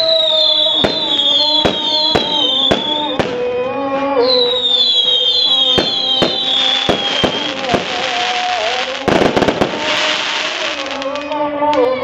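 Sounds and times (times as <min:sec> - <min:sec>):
high falling whistles: 0:00.0 - 0:03.2, 0:04.2 - 0:07.7
fireworks bangs: 0:00.0 - 0:03.6, 0:04.4 - 0:11.5.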